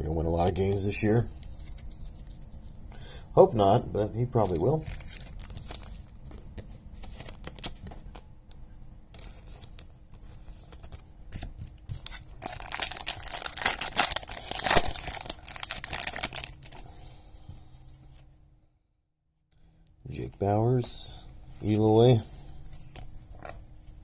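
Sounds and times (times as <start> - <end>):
wrapper tearing and crinkling: 4.6 - 6.1, 12.0 - 16.8.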